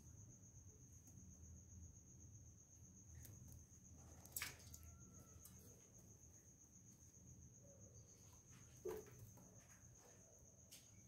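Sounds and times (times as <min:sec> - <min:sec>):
faint high-pitched tone: 0:04.6 - 0:06.1.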